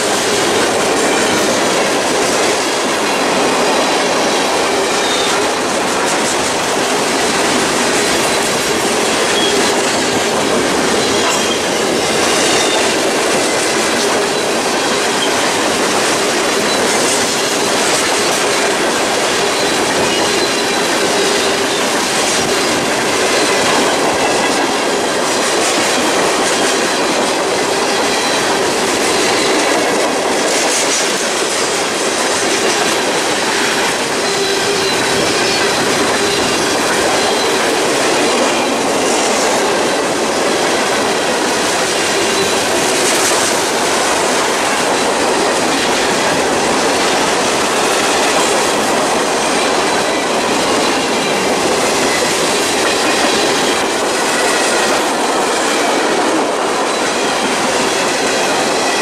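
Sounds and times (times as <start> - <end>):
steel wheels rolling on rails: 0.0 - 59.0
high-pitched wheel squeal: 9.0 - 10.2, 32.9 - 39.1.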